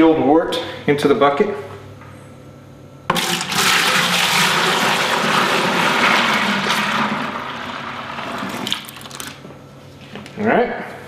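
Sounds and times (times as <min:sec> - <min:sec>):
liquid pouring into plastic bucket: 0:03.1 - 0:09.4.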